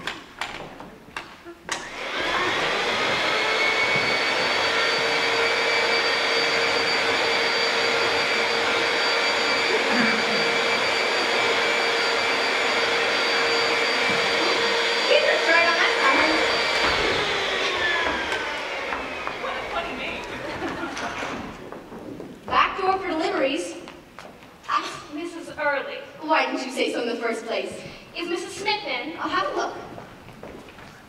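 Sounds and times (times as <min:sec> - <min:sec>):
vacuum cleaner running: 0:00.1 - 0:23.5.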